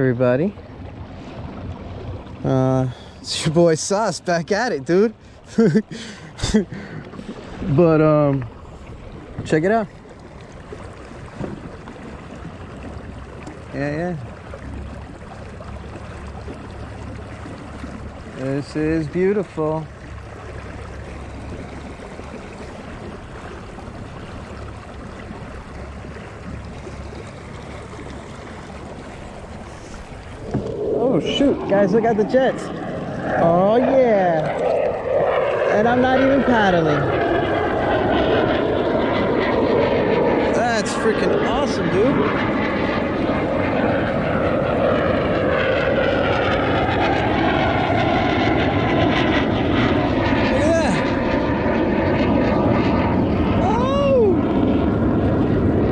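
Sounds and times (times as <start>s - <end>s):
jet aircraft roar overhead: 0.0s - 55.9s
water rushing along hull: 0.0s - 55.9s
wind on microphone: 10.6s - 15.0s, 16.8s - 55.9s.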